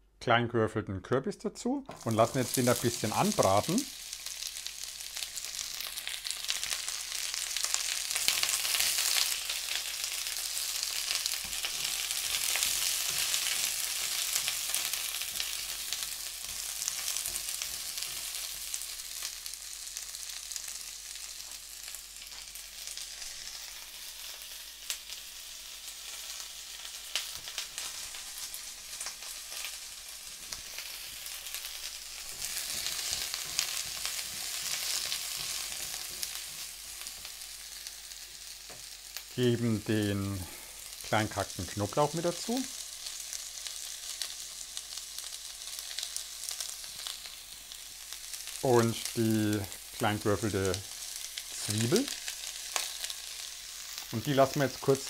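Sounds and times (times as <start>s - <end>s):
pumpkin sizzling in oil: 1.9s - 55.0s.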